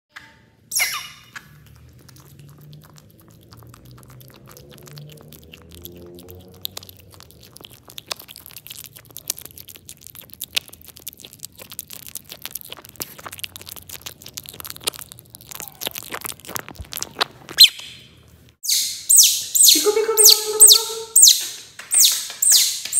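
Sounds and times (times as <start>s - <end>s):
high-pitched squeak: 0.1s - 1.4s
otter chewing fish: 0.6s - 18.7s.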